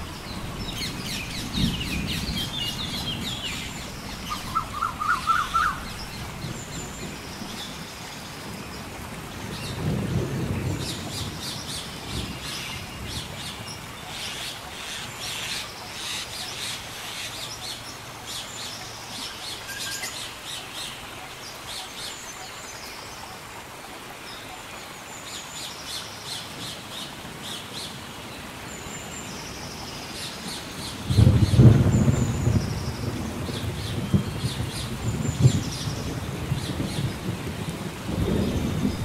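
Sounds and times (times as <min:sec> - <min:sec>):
steady rain: 0:00.0 - 0:39.0
birds chirping: 0:00.2 - 0:08.8
low thunder rumble: 0:31.0 - 0:39.0.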